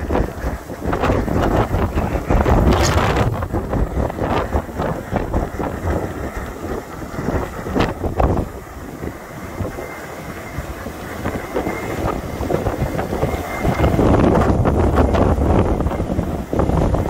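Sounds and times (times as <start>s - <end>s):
wind buffeting the microphone: 0.0s - 17.0s
wind whistling through aerials: 0.0s - 17.0s.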